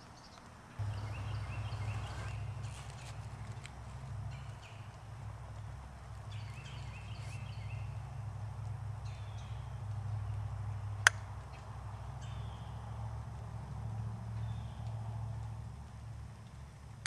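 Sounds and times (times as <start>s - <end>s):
faint high chirping calls: 0.0s - 5.1s, 6.2s - 8.2s.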